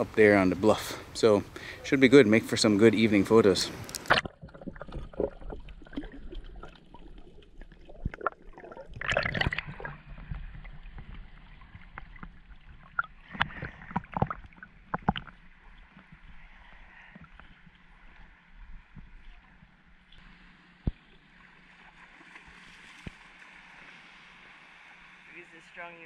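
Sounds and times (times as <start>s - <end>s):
seawater lapping and sloshing: 1.7s - 25.8s
small water splashes: 3.1s - 25.3s
small clicks: 3.8s - 4.2s.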